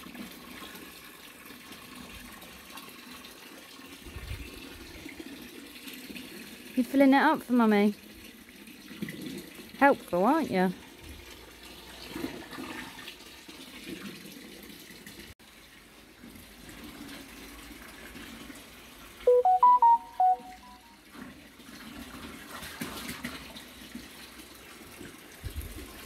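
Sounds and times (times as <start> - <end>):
hose filling bucket: 0.0 - 19.2, 21.1 - 26.0
electronic beeps: 19.3 - 20.9.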